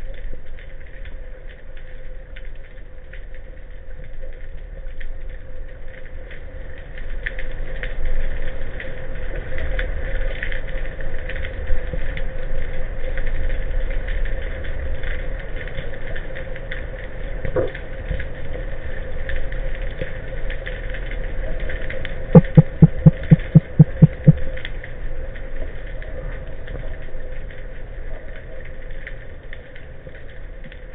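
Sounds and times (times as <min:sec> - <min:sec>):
crackling ticks: 0:00.0 - 0:30.9
underwater low rumble: 0:00.0 - 0:30.9
low knocks: 0:22.4 - 0:24.4
faint hum: 0:22.4 - 0:24.5.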